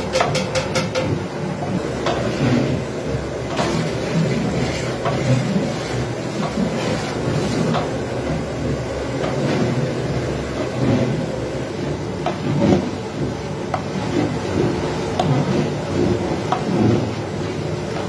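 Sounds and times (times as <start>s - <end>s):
metal on metal knocks: 0.0s - 1.2s
metal spoon stirring in pot: 3.4s - 8.0s.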